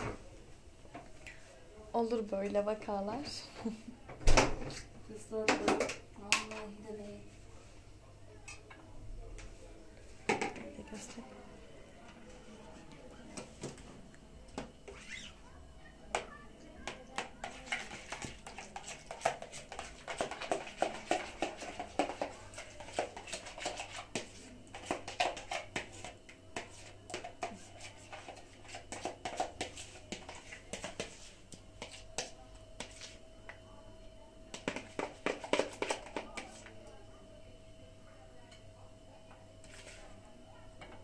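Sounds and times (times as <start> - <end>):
spoon scraping plastic bowl: 14.6 - 15.4, 16.1 - 33.2, 34.5 - 36.9, 39.6 - 40.2.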